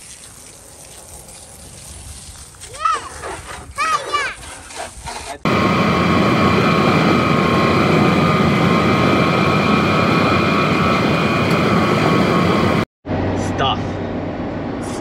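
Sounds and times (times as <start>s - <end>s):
wind and road noise: 0.0s - 15.0s
constant whine: 5.5s - 15.0s.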